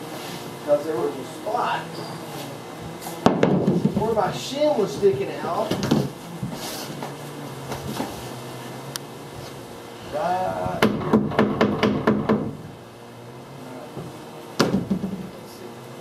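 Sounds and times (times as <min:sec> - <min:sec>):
hammer tapping on wood: 0:10.8 - 0:12.6.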